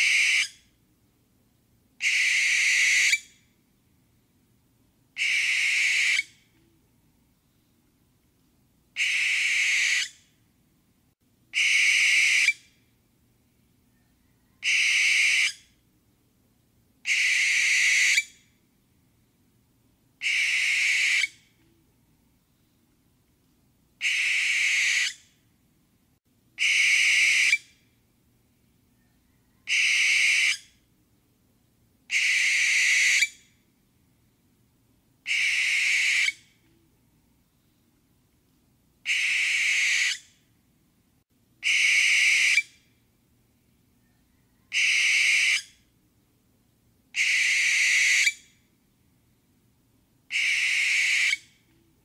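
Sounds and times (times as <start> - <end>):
barn owl screeching: 0.0 - 0.6, 2.0 - 3.3, 5.2 - 6.4, 9.0 - 10.2, 11.6 - 12.6, 14.5 - 15.6, 17.1 - 18.4, 20.2 - 21.4, 24.0 - 25.2, 26.6 - 27.7, 29.5 - 30.7, 32.1 - 33.4, 35.2 - 36.4, 39.0 - 40.3, 41.6 - 42.8, 44.3 - 45.8, 47.2 - 48.5, 50.3 - 51.6.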